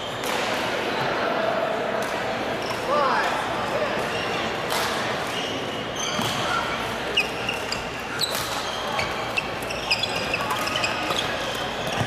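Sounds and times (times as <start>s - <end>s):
gym hall hubbub: 0.0s - 12.0s
sneakers squeaking on court: 4.0s - 12.0s.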